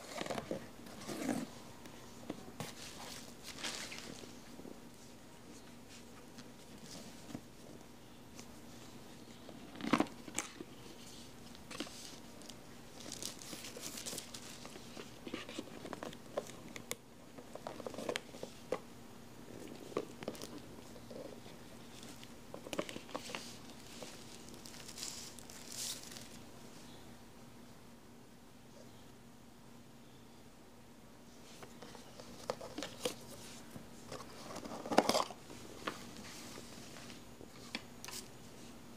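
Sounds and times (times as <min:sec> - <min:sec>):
plastic wrapping crinkling: 0:09.7 - 0:16.9, 0:21.8 - 0:26.4.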